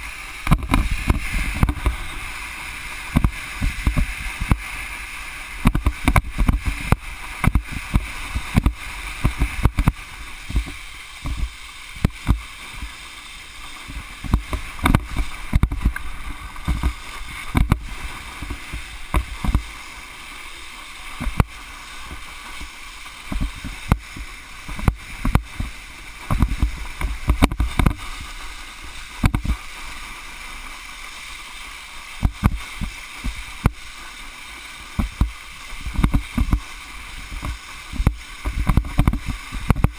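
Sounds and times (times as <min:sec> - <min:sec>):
board slapping water: 0:00.0 - 0:39.9
water rushing under wakeboard: 0:00.0 - 0:39.9
wind buffeting microphone: 0:00.4 - 0:04.9, 0:05.6 - 0:12.9.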